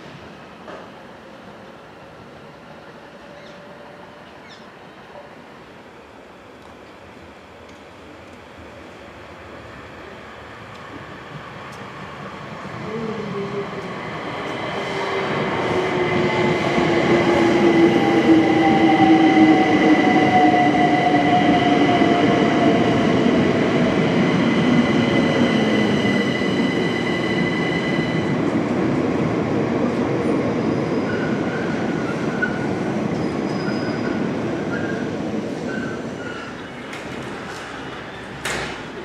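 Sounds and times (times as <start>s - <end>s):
rail and wheel noise: 0.0s - 39.0s.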